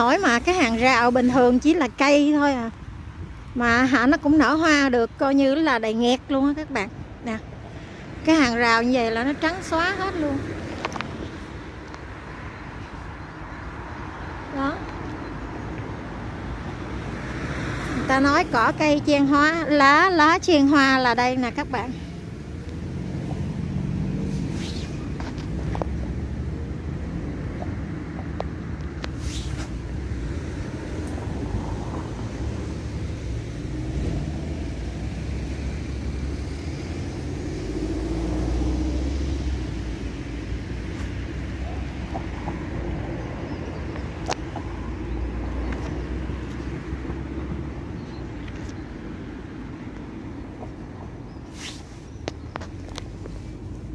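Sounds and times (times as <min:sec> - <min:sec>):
distant road traffic rumble: 0:00.0 - 0:53.9.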